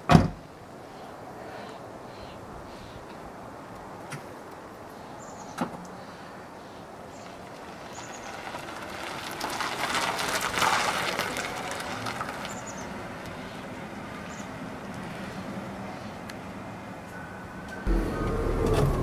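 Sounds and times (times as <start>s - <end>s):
car tyres rushing past: 7.5s - 14.4s.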